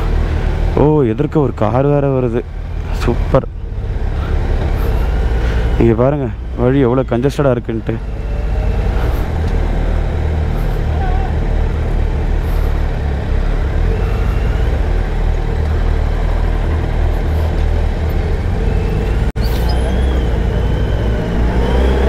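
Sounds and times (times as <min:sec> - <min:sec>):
motorcycle engine rumbling: 0:00.0 - 0:22.0.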